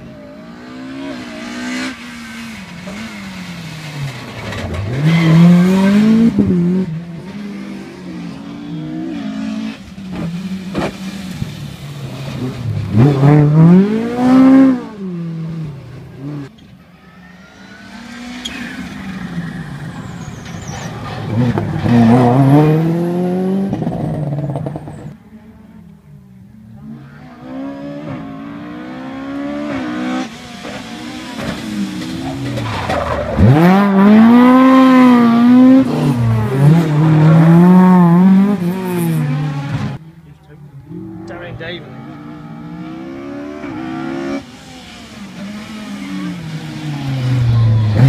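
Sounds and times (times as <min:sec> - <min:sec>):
rally car engine revving: 0:00.0 - 0:16.6, 0:17.6 - 0:48.0.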